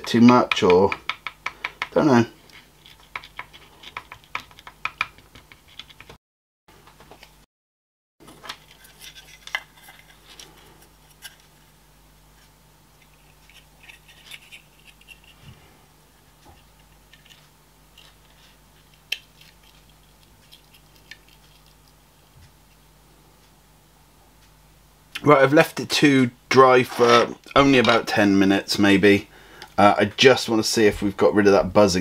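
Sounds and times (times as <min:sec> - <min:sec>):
plastic clicks and scratching: 0:02.9 - 0:06.2, 0:16.5 - 0:21.7.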